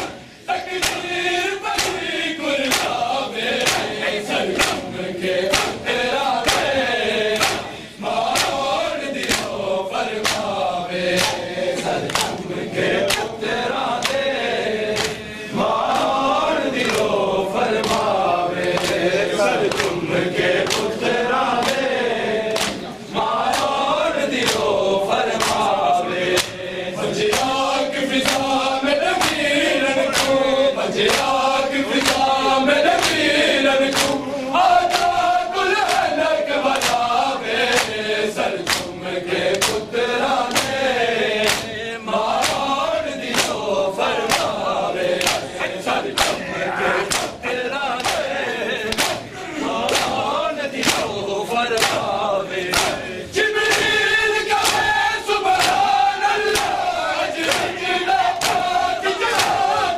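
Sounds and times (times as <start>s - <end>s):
hands slapping chests: 0.0s - 59.9s
men chanting in unison: 0.0s - 59.9s.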